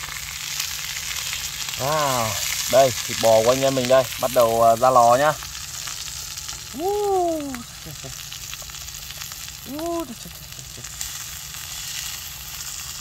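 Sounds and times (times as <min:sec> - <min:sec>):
meat sizzling in a frying pan: 0:00.0 - 0:13.0
person calling out wordlessly: 0:01.8 - 0:02.5, 0:06.7 - 0:08.1, 0:09.6 - 0:10.8.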